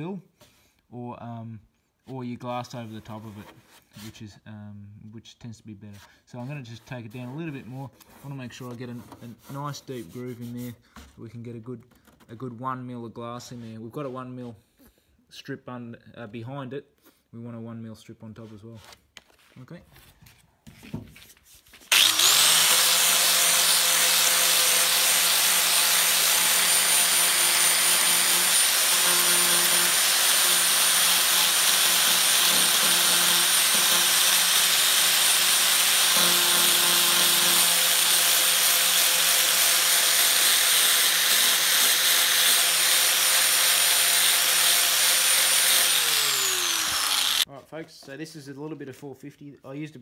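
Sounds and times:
angle grinder whining: 0:21.9 - 0:47.5.

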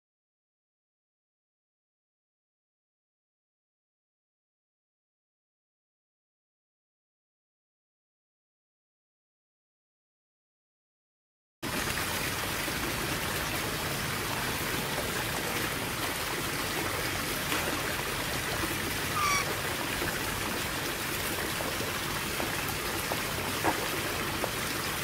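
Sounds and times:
running water rushing: 0:11.6 - 0:25.0
short bird chirp: 0:19.1 - 0:19.5.

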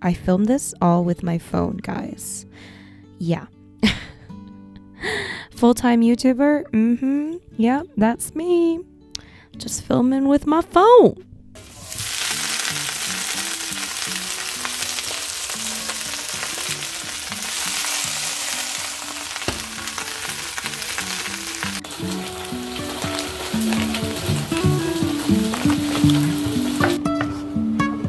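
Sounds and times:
soft background music: 0:00.0 - 0:28.0
vegetables sizzling in wok: 0:11.6 - 0:27.0.

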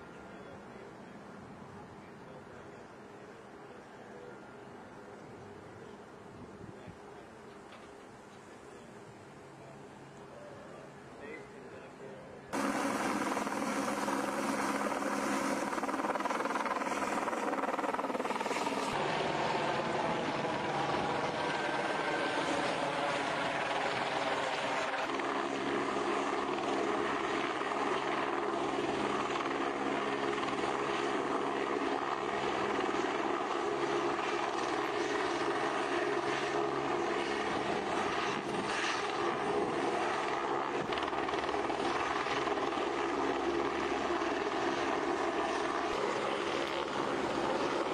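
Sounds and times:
helicopter engine and rotor: 0:12.5 - 0:47.9.

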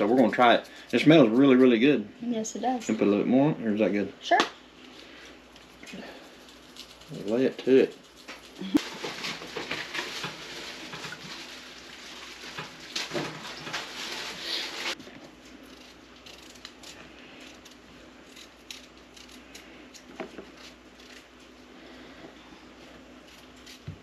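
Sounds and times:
liquid pouring and splashing: 0:08.8 - 0:14.3
knife peeling potatoes: 0:13.3 - 0:21.6, 0:22.8 - 0:24.0.

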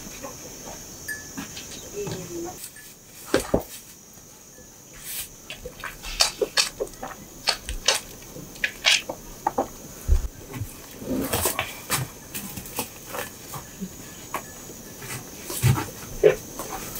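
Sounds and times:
calf suckling wet clicks: 0:05.5 - 0:09.6.

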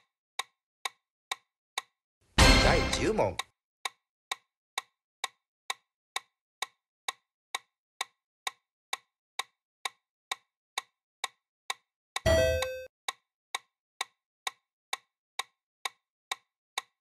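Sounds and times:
timer ticking: 0:01.8 - 0:03.5, 0:04.3 - 0:16.9
electronic time-up signal tones: 0:12.3 - 0:12.9.

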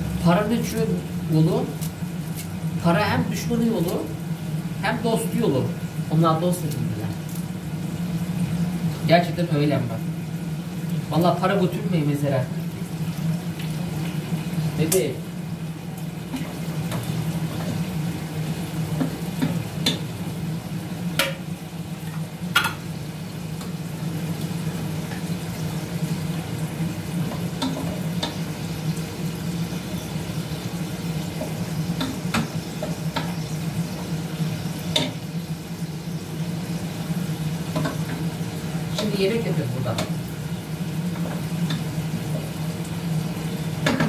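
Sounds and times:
food sizzling in a pan: 0:00.0 - 0:44.0
utensil clicking against pan: 0:21.2 - 0:21.4.

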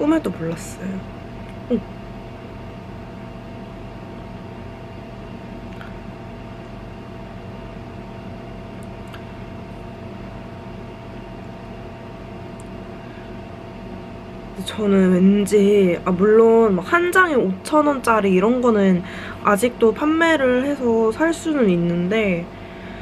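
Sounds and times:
steady machine hum: 0:00.0 - 0:23.0.

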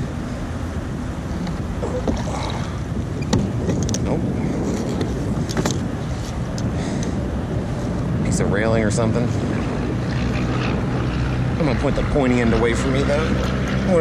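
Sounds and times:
steady rushing noise: 0:00.0 - 0:14.0
small clicks and knocks: 0:04.8 - 0:06.7.

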